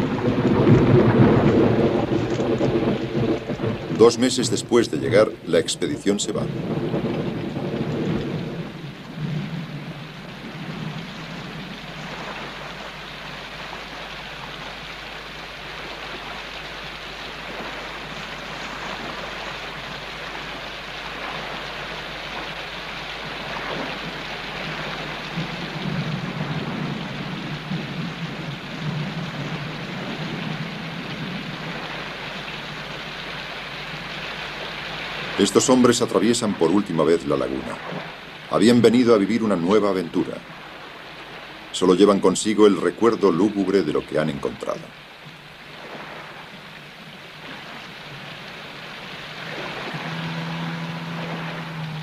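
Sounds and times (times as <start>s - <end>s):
thunder rumbling: 0.0s - 13.0s, 17.3s - 33.0s, 47.4s - 52.0s
heavy rain falling: 0.0s - 52.0s.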